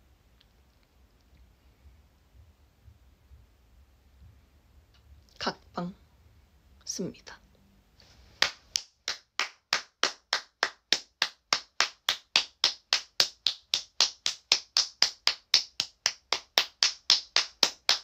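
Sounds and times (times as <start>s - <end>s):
woman clapping hands: 8.4s - 18.0s.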